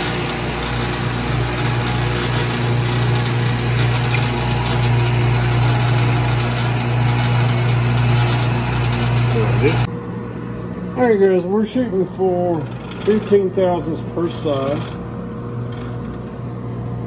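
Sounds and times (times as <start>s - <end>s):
coolant pouring over blade: 0.0s - 9.9s
grinder motor hum and whir: 0.0s - 9.9s.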